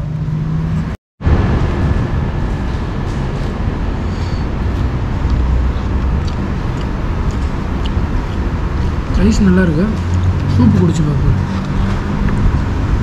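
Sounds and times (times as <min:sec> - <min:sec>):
low rumble and hiss: 0:01.2 - 0:11.6.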